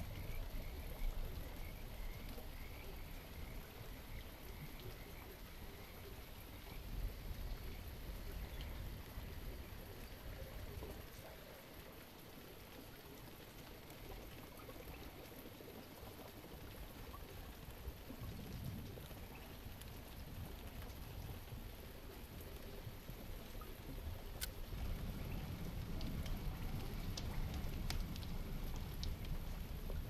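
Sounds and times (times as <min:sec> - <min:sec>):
faint water noise: 0:00.0 - 0:30.0
small ticks: 0:23.5 - 0:30.0.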